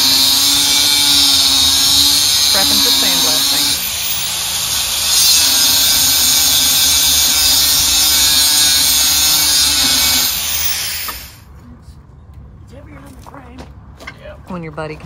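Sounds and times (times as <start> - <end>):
angle grinder grinding steel: 0.0 - 11.4.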